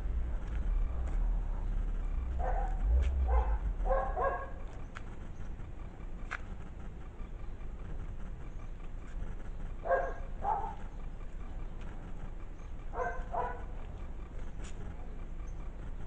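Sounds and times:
steady low rumble: 0.0s - 16.0s
dog barking: 2.3s - 4.7s, 9.8s - 10.8s, 12.9s - 13.8s.

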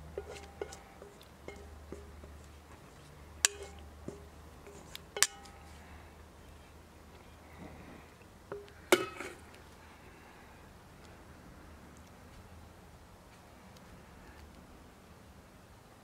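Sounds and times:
metal bowl clinking: 0.2s - 2.1s, 3.4s - 4.3s, 5.1s - 5.7s
spatula scraping bowl: 0.2s - 2.4s.

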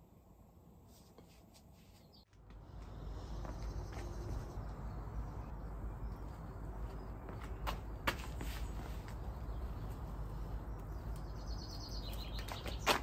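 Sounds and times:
steady low rumble: 2.3s - 12.3s.

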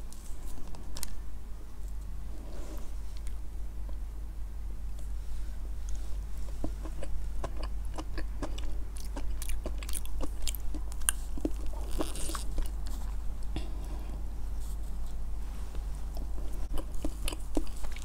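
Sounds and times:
close-miked chewing: 5.8s - 13.7s, 16.0s - 18.0s.

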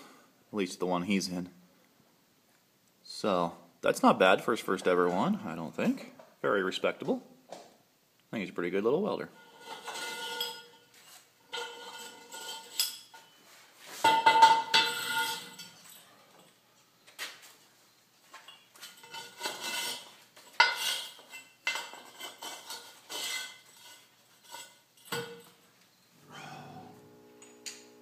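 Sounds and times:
steel pipes clanking and scraping: 9.4s - 13.4s, 14.0s - 16.0s, 18.5s - 25.3s.

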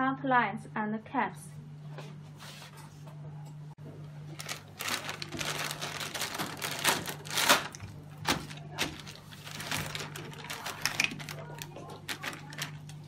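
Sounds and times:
plastic bags crinkling: 4.3s - 13.0s.

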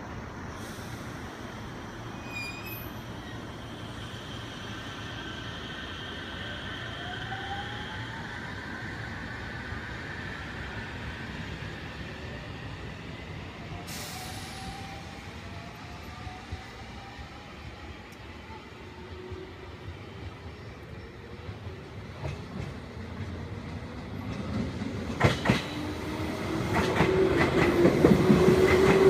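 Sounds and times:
wheels rumbling on rail: 8.1s - 29.0s
burst of hiss: 13.9s - 14.8s.

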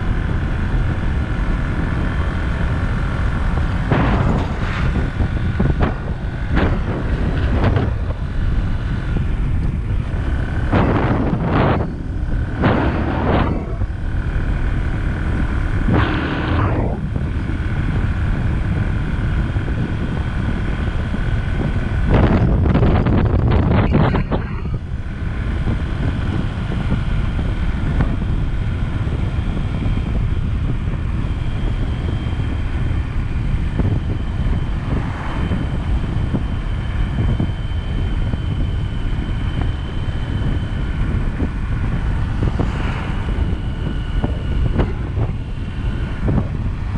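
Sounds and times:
faint high whine: 0.0s - 46.9s
vehicle rumbling on road: 0.0s - 46.9s
wind buffeting microphone: 0.0s - 46.9s
vehicle passing: 41.9s - 45.2s.

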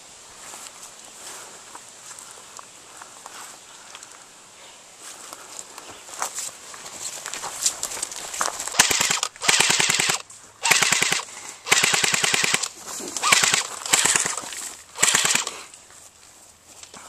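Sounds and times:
airsoft rifle firing bursts: 8.7s - 15.6s.

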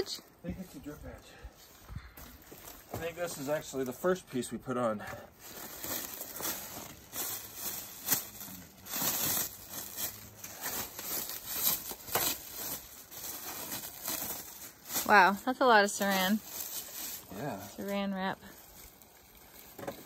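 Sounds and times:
plastic film crinkling and tearing: 5.4s - 20.0s.

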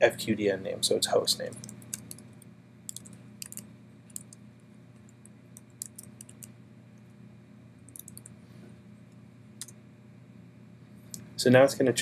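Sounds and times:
low steady hum: 0.0s - 12.0s
computer keyboard typing: 1.5s - 4.4s, 5.0s - 6.5s, 7.9s - 8.3s.

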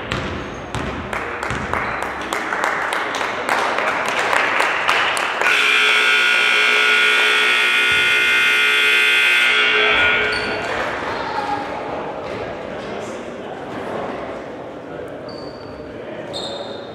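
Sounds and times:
ball bouncing: 0.0s - 1.7s
crowd noise: 0.0s - 16.9s
scoreboard horn buzzing: 5.4s - 10.7s.

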